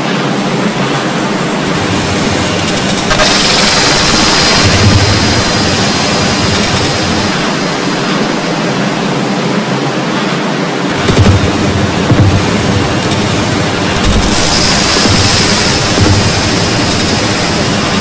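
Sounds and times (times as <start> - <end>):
thin high whine: 0.0 - 9.4
hissing noise roar: 0.0 - 9.6, 10.9 - 18.0.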